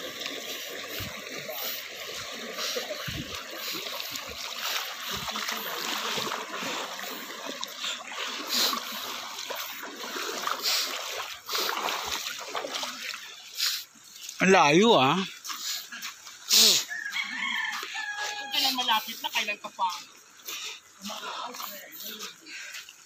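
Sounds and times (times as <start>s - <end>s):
stream rushing over stones: 0.0s - 15.2s
feet splashing in river: 0.0s - 23.0s.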